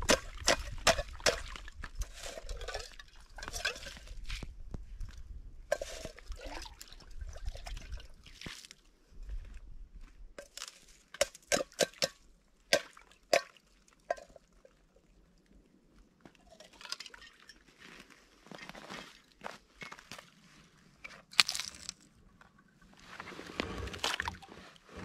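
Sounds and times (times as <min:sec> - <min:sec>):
water sloshing and trickling: 0:00.1 - 0:08.9, 0:10.5 - 0:25.0
sharp drips and clinks: 0:02.0 - 0:04.1, 0:13.3 - 0:14.8, 0:16.4 - 0:17.7.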